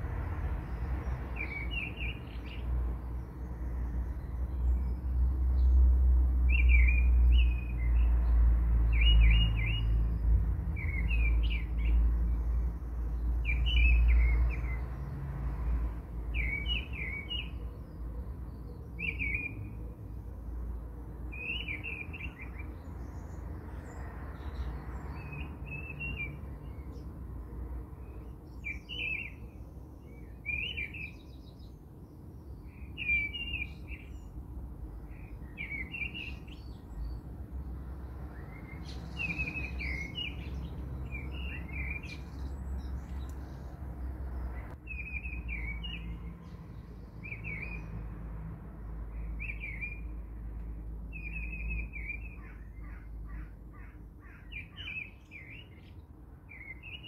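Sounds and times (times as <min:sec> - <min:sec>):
small bird chirping: 0:38.3 - 0:43.8.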